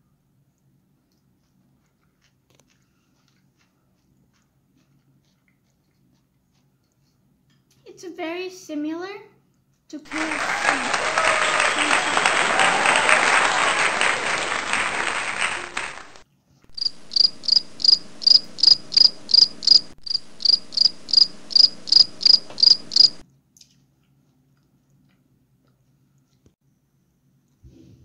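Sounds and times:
applause: 0:10.1 - 0:16.2
cricket chirping: 0:16.7 - 0:23.2.

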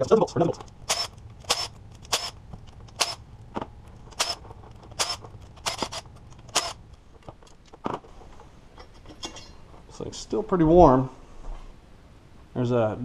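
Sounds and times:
metal bolts clinking on metal: 0:08.8 - 0:09.6.

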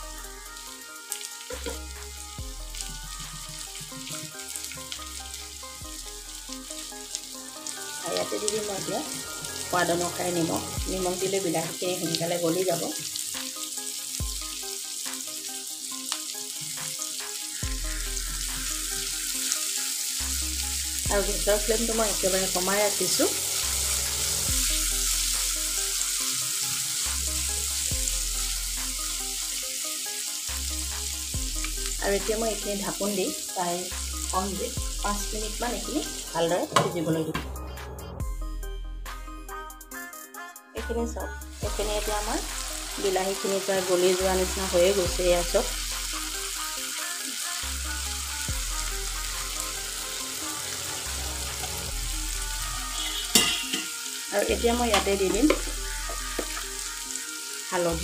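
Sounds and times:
vegetables sizzling in hot oil: 0:00.0 - 0:37.1, 0:41.5 - 0:58.0
soft background music: 0:00.0 - 0:58.0
spatula scraping wok: 0:50.0 - 0:54.0
spatula stirring in pan: 0:53.0 - 0:53.9.

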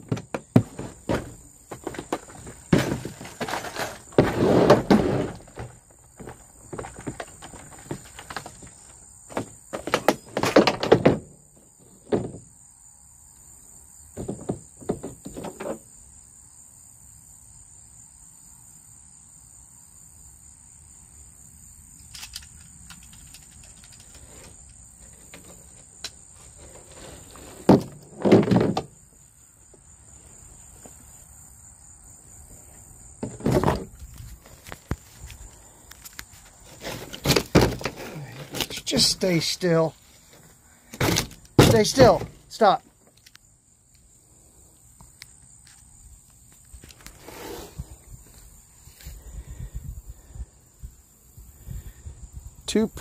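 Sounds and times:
fishing gear clunking: 0:00.0 - 0:11.3, 0:36.8 - 0:42.8.

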